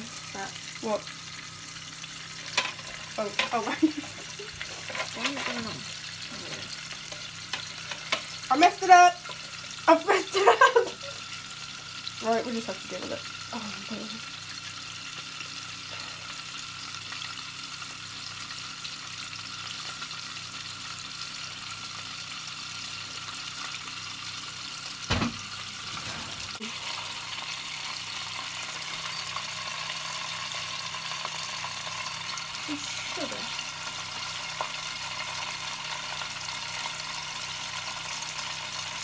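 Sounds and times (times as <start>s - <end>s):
butter sizzling in saucepan: 0.0s - 39.0s
knock: 25.1s - 25.4s.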